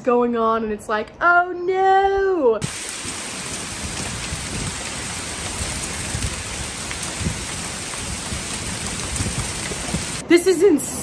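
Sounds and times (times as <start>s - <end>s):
heavy rain pouring: 2.6s - 10.3s
low rumbling: 2.6s - 10.3s.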